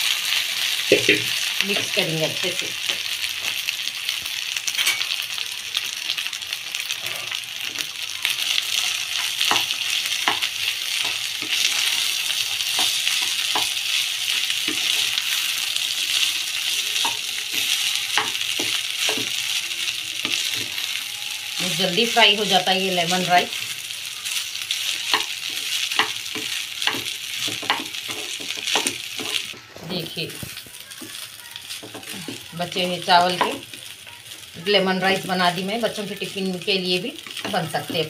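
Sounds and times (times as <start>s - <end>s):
rice sizzling in hot oil: 0.0s - 38.0s.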